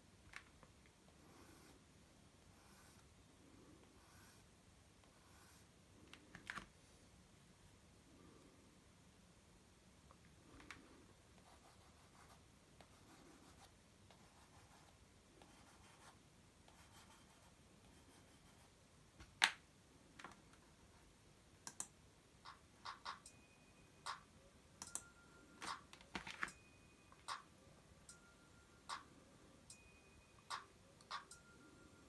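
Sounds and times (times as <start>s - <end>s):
pencil scratching on paper: 1.2s - 1.8s, 2.5s - 3.0s, 5.1s - 5.7s, 11.4s - 18.7s
sharp taps and clicks: 21.6s - 23.3s, 24.1s - 25.0s.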